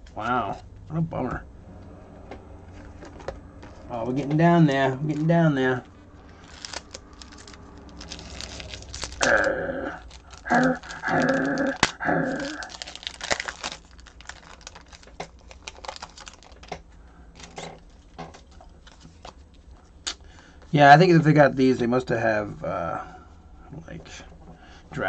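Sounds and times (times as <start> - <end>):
drawn-out pitched vocal sounds: 1.3 - 12.8
wrapper tearing and crinkling: 6.3 - 16.8, 17.4 - 20.2.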